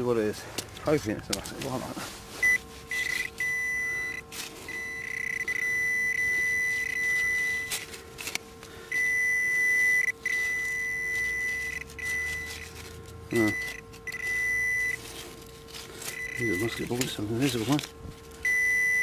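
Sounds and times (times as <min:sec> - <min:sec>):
high-pitched detector beep: 0:02.4 - 0:07.8, 0:08.9 - 0:15.1, 0:16.0 - 0:17.0, 0:18.4 - 0:19.0
probe scraping pebbles and sand: 0:10.2 - 0:18.5.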